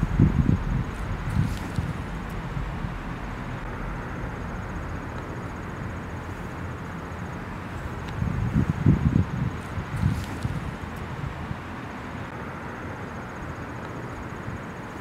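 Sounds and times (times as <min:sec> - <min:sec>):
low rumble: 0:00.0 - 0:11.4
outdoor hiss: 0:00.0 - 0:15.0.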